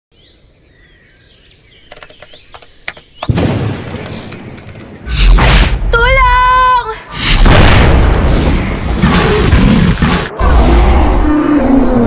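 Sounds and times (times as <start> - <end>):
faint chirps and clicks: 1.8 - 5.0.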